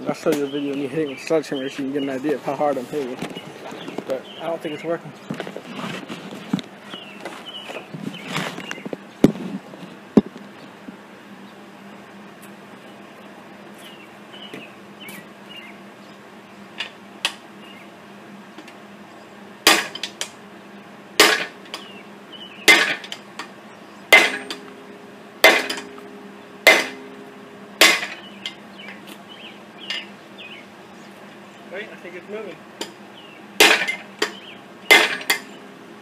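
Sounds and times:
sledgehammer blows on metal: 0:21.2 - 0:21.6, 0:24.1 - 0:24.8, 0:25.4 - 0:28.3, 0:33.6 - 0:35.6
metallic ringing tone: 0:24.1 - 0:28.6.

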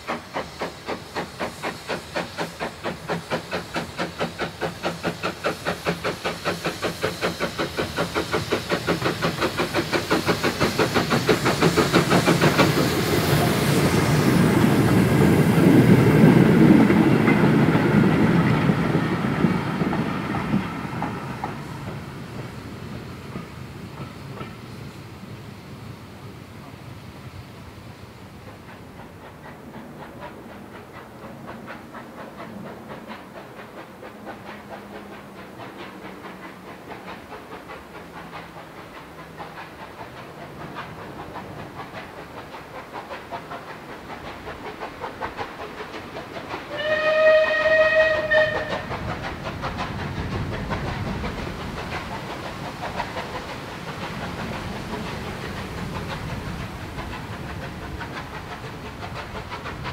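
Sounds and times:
steam locomotive exhaust beats: 0:00.0 - 0:59.9
steam locomotive whistle: 0:46.7 - 0:48.9.

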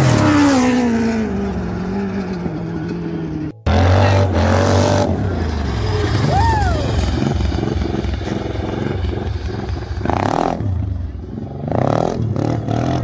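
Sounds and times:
lawn mower engine running hard: 0:03.6 - 0:11.1.

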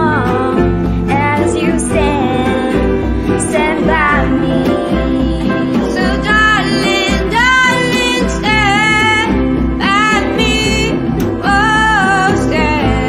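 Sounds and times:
grand piano: 0:00.0 - 0:13.0
strummed acoustic guitar: 0:00.0 - 0:13.0.

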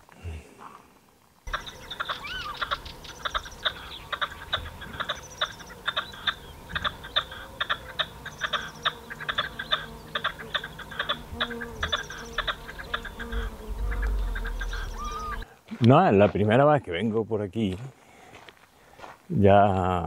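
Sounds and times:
partridge harsh clucking calls: 0:01.5 - 0:15.4.

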